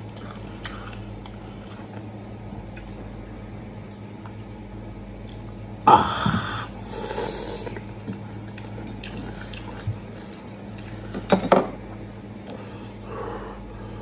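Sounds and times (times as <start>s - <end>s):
crispy skin crackling while chewed: 0.0s - 3.4s, 7.6s - 11.2s.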